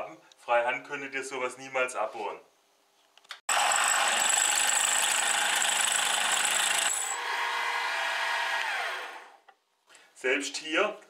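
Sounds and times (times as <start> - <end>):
drill bit cutting steel: 3.5 - 9.2
drill motor whining: 3.5 - 9.4.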